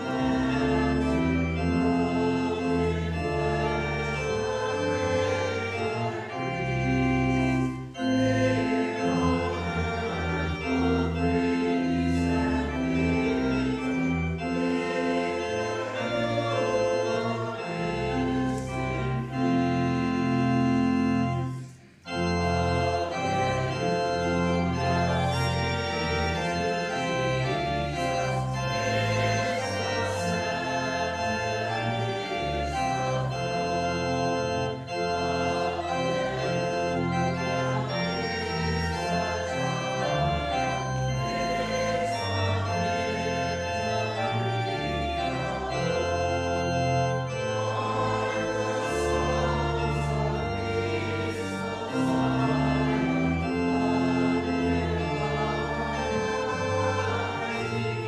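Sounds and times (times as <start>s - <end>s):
congregation singing: 0.0s - 58.0s
pipe organ chords: 0.0s - 58.0s.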